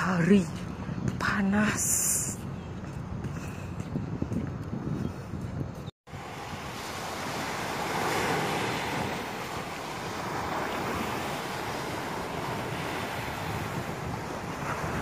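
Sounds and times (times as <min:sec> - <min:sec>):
wind buffeting microphone: 0:00.0 - 0:15.0
small waves breaking on beach: 0:06.1 - 0:15.0.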